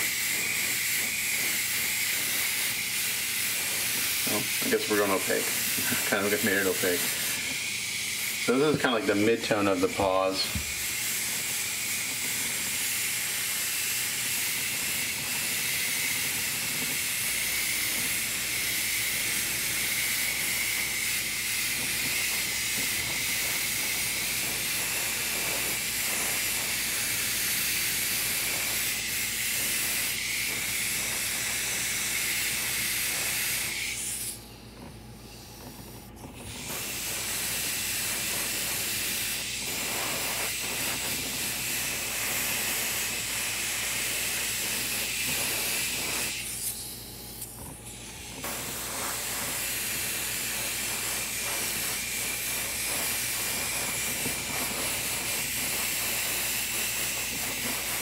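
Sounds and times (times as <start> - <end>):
airbrush spraying hiss: 0.0 - 58.0.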